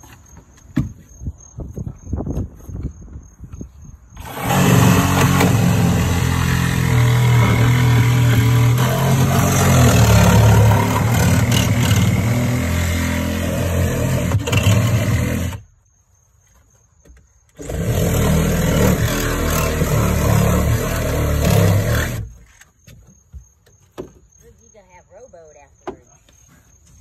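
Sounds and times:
power saw cutting fiberglass: 4.2 - 15.6, 17.6 - 22.3.

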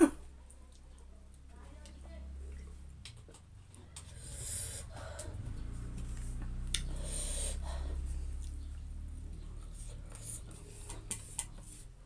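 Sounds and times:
low steady hum: 0.0 - 12.0
chewing: 0.3 - 11.8
breath hiss: 4.2 - 4.9, 6.9 - 8.0.

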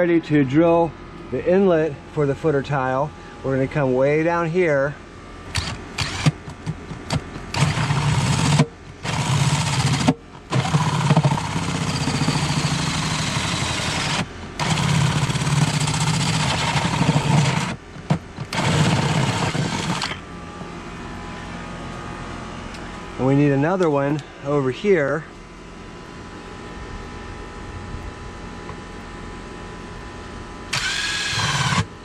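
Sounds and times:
cordless drill with hole saw cutting: 5.5 - 6.4, 7.5 - 17.8, 18.4 - 20.2, 30.7 - 31.9.

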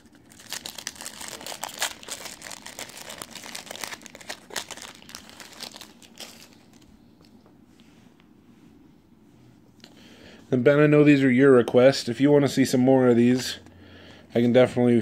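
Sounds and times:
wrapper crinkling and tearing: 0.0 - 6.9.

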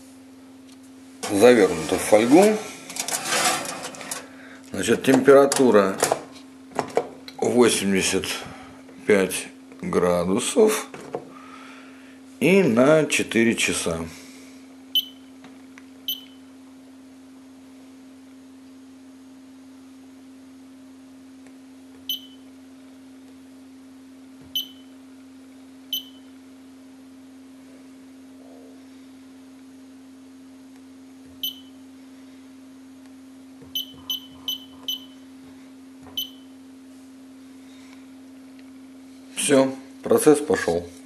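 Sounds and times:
steady low hum: 0.0 - 41.0
oven control panel beeping: 15.0 - 15.3, 16.1 - 16.4, 22.1 - 22.4, 24.5 - 24.9, 25.9 - 26.3, 31.4 - 31.8, 33.7 - 35.2, 36.1 - 36.5.

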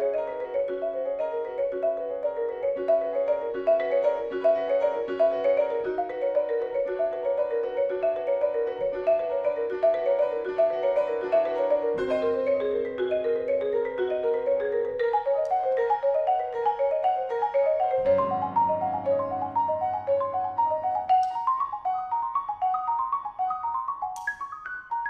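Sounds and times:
marimba fast runs: 0.2 - 25.0
piano low notes: 11.6 - 13.5, 17.9 - 21.6.

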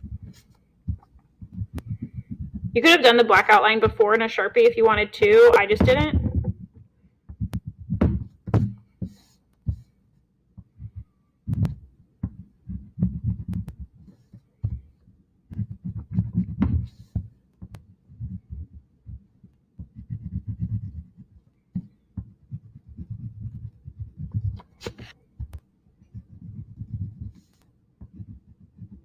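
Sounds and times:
crayon rubbing on paper: 19.8 - 21.3, 22.4 - 25.2, 26.0 - 29.0.

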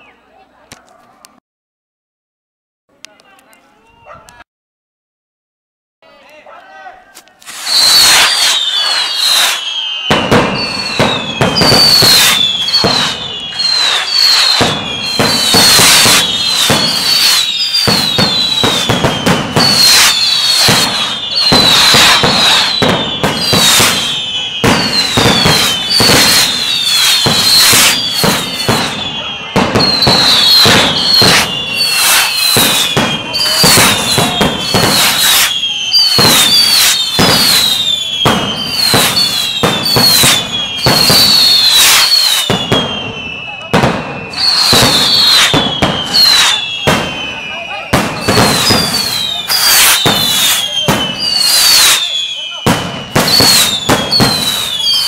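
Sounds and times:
firecracker bangs and crackling: 7.4 - 55.0
whistling fireworks: 7.4 - 55.0.

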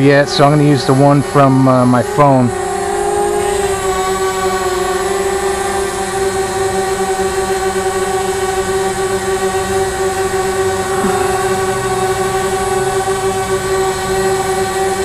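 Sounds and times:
quadcopter drone whine: 0.0 - 15.0.

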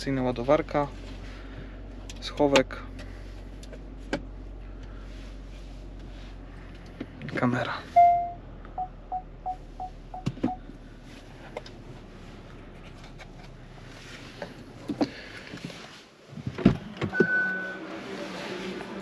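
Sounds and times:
electronic warning beeps: 8.0 - 10.6.

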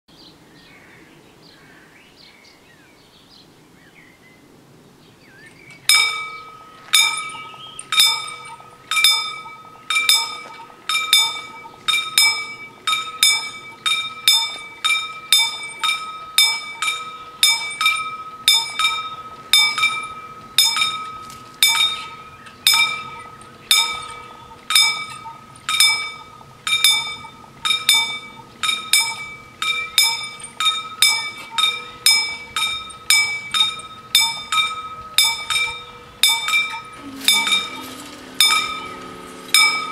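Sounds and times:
faint birdsong: 0.1 - 12.0, 21.2 - 26.6
level crossing bells ringing: 5.9 - 39.9.

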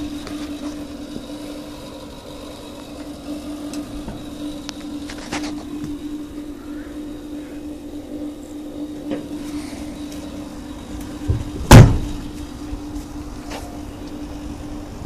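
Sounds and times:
steady low hum: 0.0 - 15.0
heavy slam: 11.3 - 12.2.

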